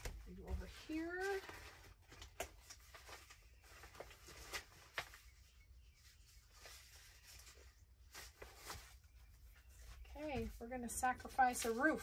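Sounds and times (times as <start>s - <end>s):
paper rustling and tapping: 0.0s - 5.4s.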